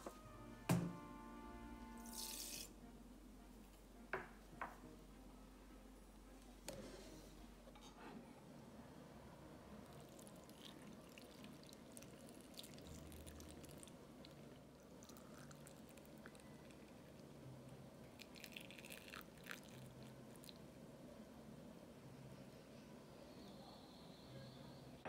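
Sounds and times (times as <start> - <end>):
liquid pouring into jar: 2.0 - 2.7, 9.9 - 17.1, 18.2 - 20.6.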